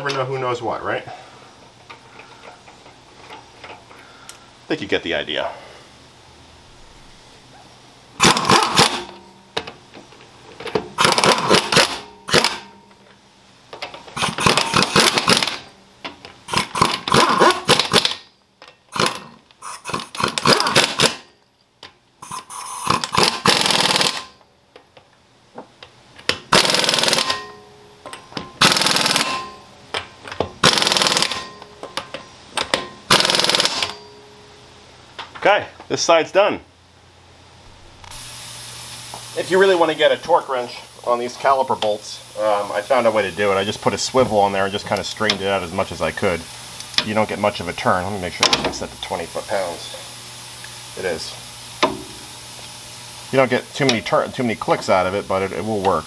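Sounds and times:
pneumatic impact wrench hammering: 0:08.2 - 0:09.7, 0:10.6 - 0:12.8, 0:13.8 - 0:15.7, 0:16.4 - 0:18.3, 0:18.9 - 0:21.3, 0:22.2 - 0:24.4, 0:26.2 - 0:34.1, 0:48.4 - 0:49.2, 0:51.7 - 0:52.7.

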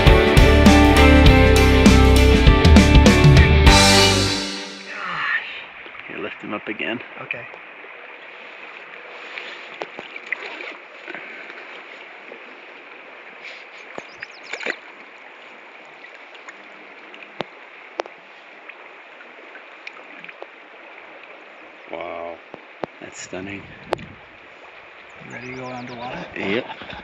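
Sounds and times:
river flowing and gurgling: 0:00.0 - 0:27.0
small water splashes: 0:07.4 - 0:23.1.

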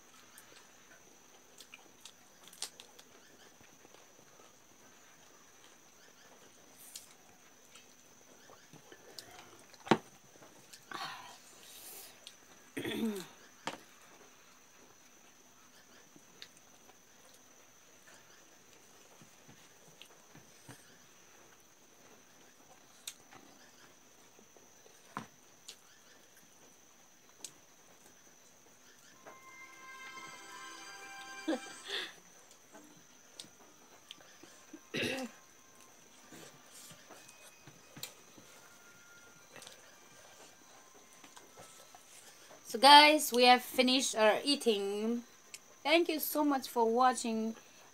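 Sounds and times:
faint chewing: 0:00.1 - 0:29.1, 0:32.4 - 0:42.7.

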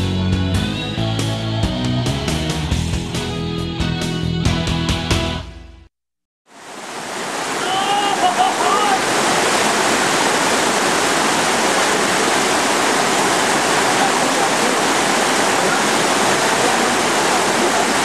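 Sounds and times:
river rapids rushing: 0:06.5 - 0:18.0.

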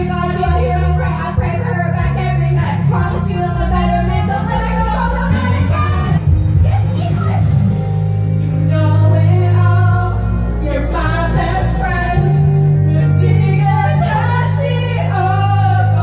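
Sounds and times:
women singing karaoke: 0:00.0 - 0:07.8, 0:08.6 - 0:16.0
backing track with heavy bass: 0:00.0 - 0:16.0.

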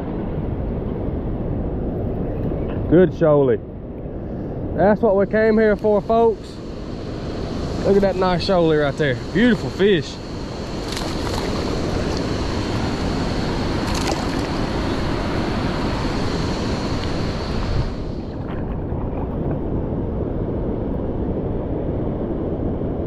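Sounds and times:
wind on microphone: 0:00.0 - 0:23.0
flowing river current: 0:05.6 - 0:19.4
fish splashing: 0:10.8 - 0:12.2, 0:13.8 - 0:14.6.

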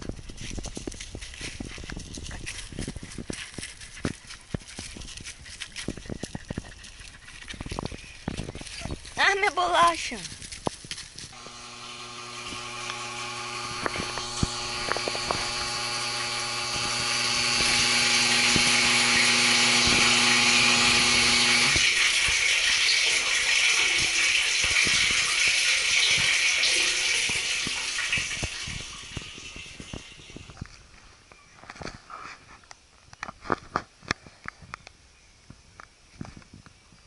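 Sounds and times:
machine hum: 0:11.4 - 0:22.0.

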